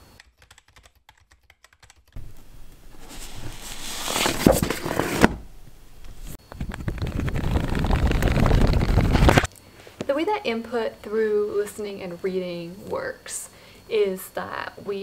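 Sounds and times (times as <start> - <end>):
comic book pages riffled: 2.9 - 5.4, 6.2 - 9.5.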